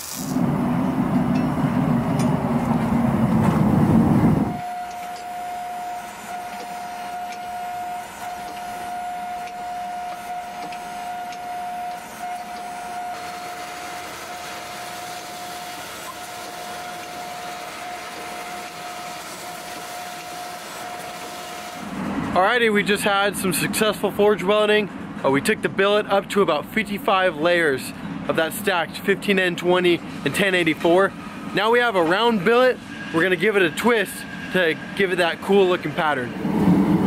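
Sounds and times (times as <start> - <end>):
hydraulic press whining: 0.0 - 22.3, 29.7 - 36.6
forge burner roaring: 0.0 - 24.2, 28.0 - 37.0.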